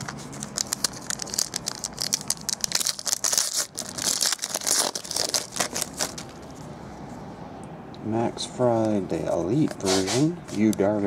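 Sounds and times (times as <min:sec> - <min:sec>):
foil wrapper crinkling: 0:00.0 - 0:06.5.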